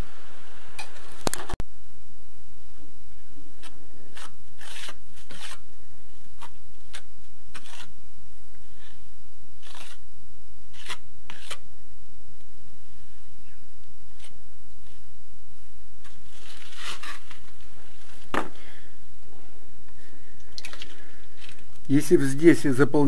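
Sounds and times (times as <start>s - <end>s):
steady low hum: 0.0s - 23.0s
trowel scraping mortar: 3.6s - 5.7s, 6.4s - 8.0s, 9.6s - 10.0s, 10.7s - 11.6s, 16.3s - 17.5s.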